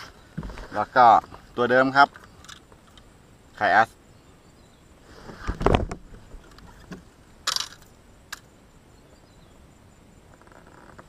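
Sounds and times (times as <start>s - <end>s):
brief rustle: 5.1s - 7.9s.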